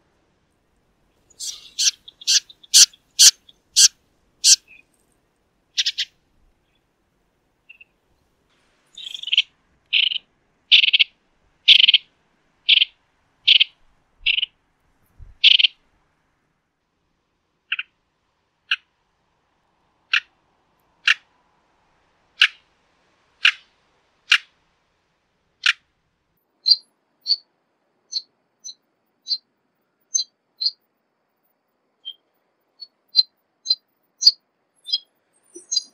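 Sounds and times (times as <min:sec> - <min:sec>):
wren calling: 0:01.3 - 0:04.8, 0:05.8 - 0:06.1, 0:08.9 - 0:11.1, 0:11.7 - 0:12.1, 0:12.7 - 0:14.6, 0:15.4 - 0:15.8, 0:17.7 - 0:17.9, 0:26.6 - 0:27.4, 0:28.1 - 0:29.4, 0:30.1 - 0:30.8, 0:32.0 - 0:32.2, 0:32.8 - 0:35.9.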